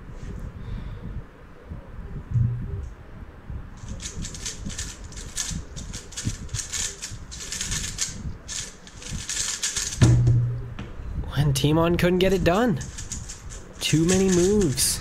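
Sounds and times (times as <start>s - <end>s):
puzzle cube clicking: 3.9s - 10.0s, 12.8s - 14.8s.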